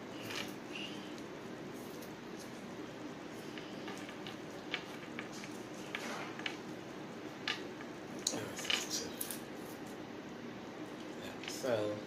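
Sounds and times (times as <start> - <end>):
faint low hum: 0.0 - 12.0
artificial flower stems clicking: 3.4 - 9.4.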